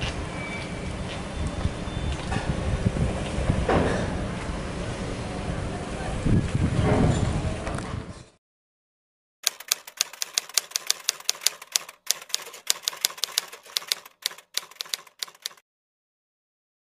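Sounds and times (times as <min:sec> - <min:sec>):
typewriter keys clacking: 0:09.4 - 0:15.6.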